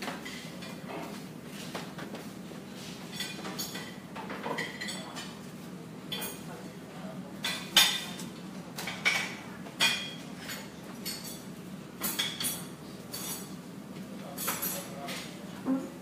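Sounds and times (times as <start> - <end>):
dishes and cutlery clinking: 2.9 - 5.5, 6.1 - 6.6, 7.4 - 13.6, 14.2 - 16.0.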